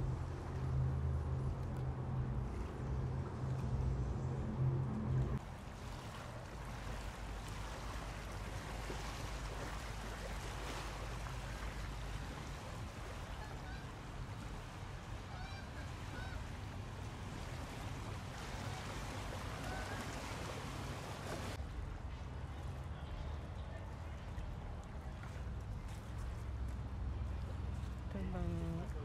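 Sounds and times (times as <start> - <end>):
low rumble: 0.0 - 5.4
river water rushing: 4.4 - 21.9.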